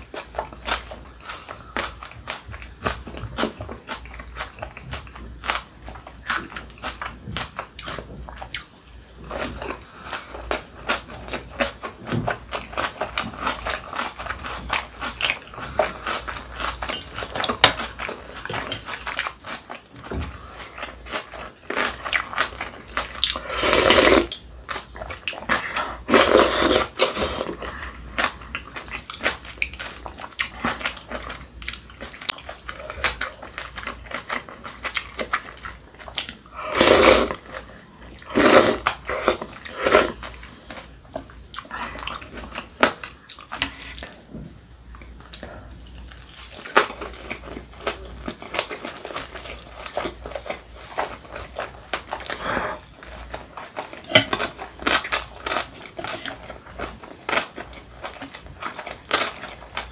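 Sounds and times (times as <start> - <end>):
slurping noodle soup: 23.2 - 24.4, 25.5 - 28.0, 36.5 - 40.6.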